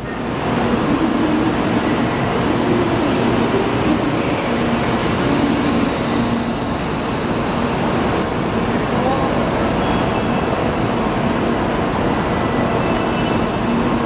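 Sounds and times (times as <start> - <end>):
high-speed train rushing past: 0.0 - 14.0.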